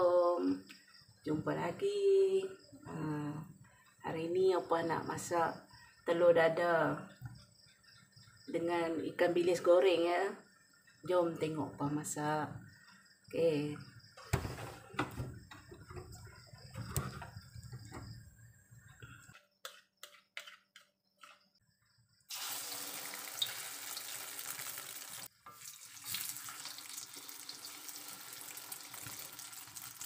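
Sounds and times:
knocks and clatters: 14.2s - 18.3s
egg sizzling in hot oil: 22.3s - 30.0s.

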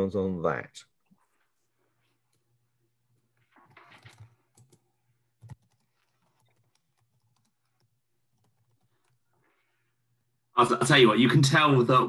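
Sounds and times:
faint keyboard typing: 2.0s - 9.7s.

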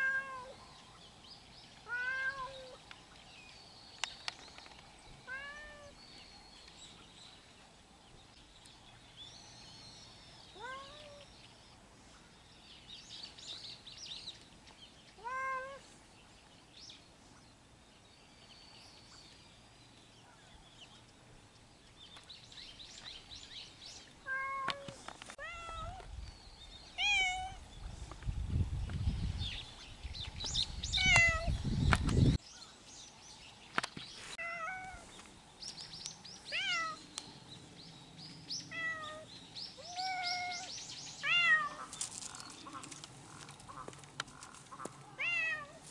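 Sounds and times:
cat meowing: 1.9s - 2.8s, 27.0s - 27.6s, 45.2s - 45.8s.

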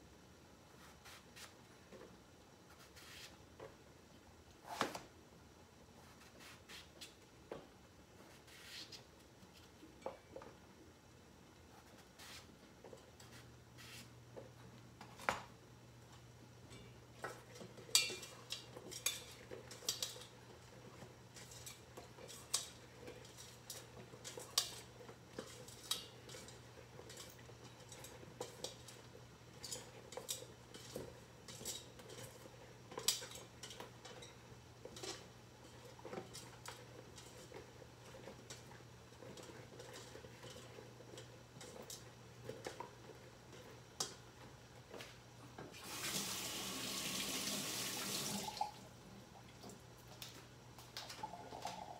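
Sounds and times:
contents bubbling: 51.0s - 51.9s.

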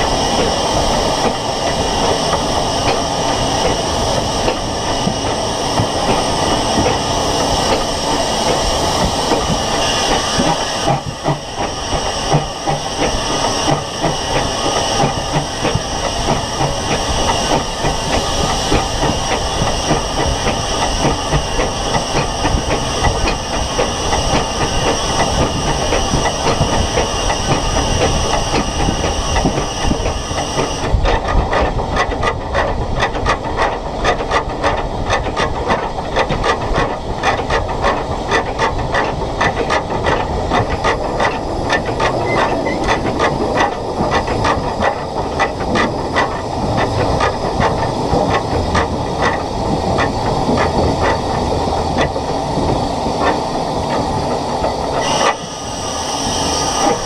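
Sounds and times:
steam hiss: 0.0s - 31.0s, 52.4s - 57.0s
steam locomotive beats: 0.0s - 57.0s.

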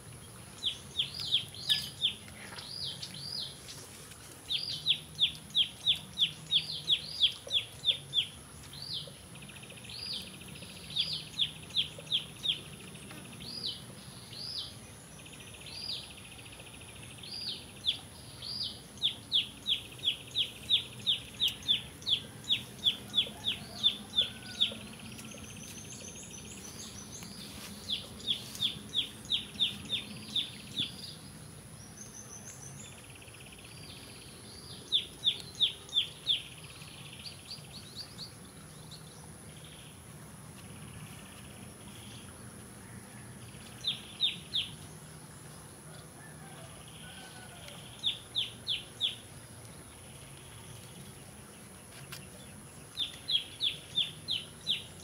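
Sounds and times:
bird chirping: 0.1s - 40.0s, 43.2s - 45.7s, 46.4s - 55.0s.

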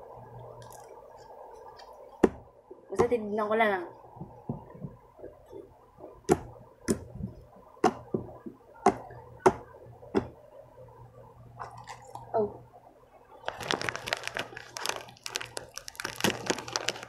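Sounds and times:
slime popping: 13.4s - 17.0s.

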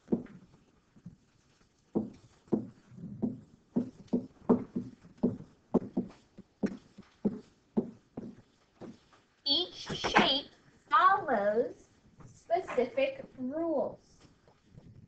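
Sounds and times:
pen tapping on hard surface: 2.0s - 9.0s.

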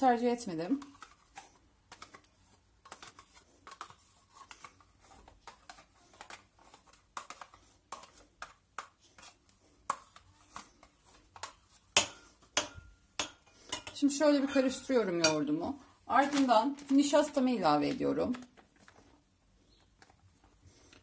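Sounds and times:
spoon scraping plastic cup: 0.3s - 12.6s.

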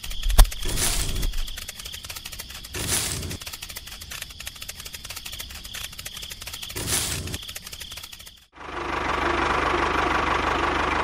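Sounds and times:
fast even ticking: 0.0s - 8.5s.

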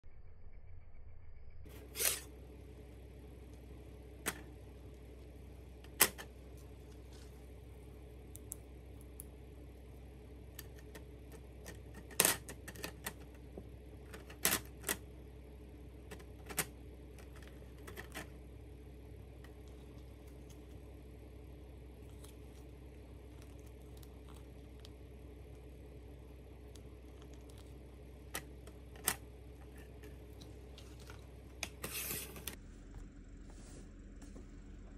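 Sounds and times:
faint low hum: 0.0s - 34.9s.

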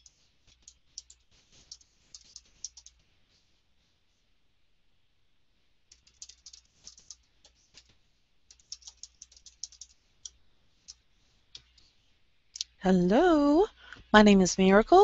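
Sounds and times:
faint keyboard typing: 0.0s - 3.1s, 5.9s - 12.0s.

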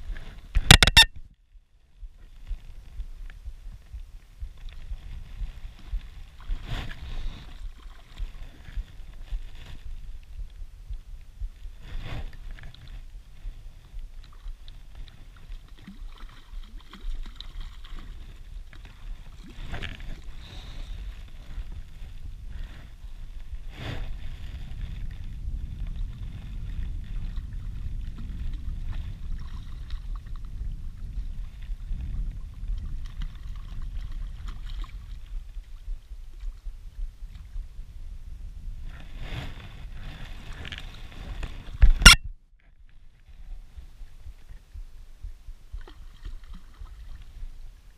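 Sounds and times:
wind rumbling on microphone: 0.0s - 47.9s.

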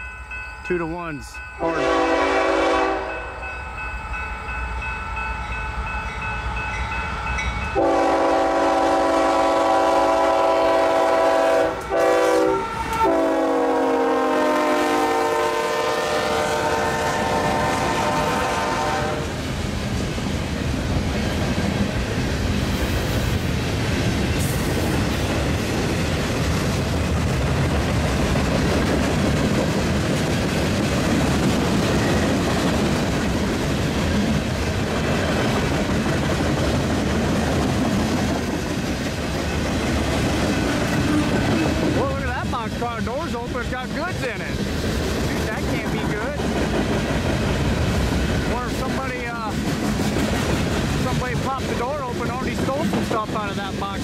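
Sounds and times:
train cars rolling on rails: 0.0s - 54.0s
locomotive air horn blasts: 1.6s - 3.3s, 7.8s - 19.4s.

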